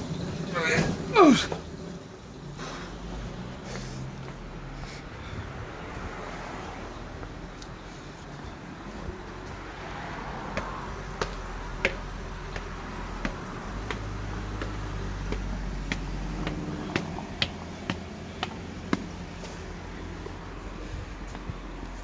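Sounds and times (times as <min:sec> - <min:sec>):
footsteps on hard ground: 0:07.1 - 0:22.0.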